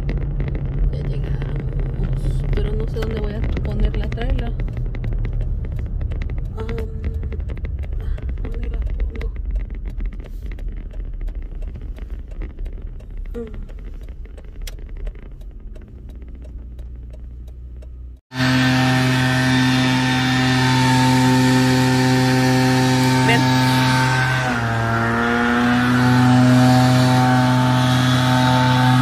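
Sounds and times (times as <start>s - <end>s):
car driving rumble inside cabin: 0.0s - 29.0s
small engine of yard tool: 18.3s - 29.0s.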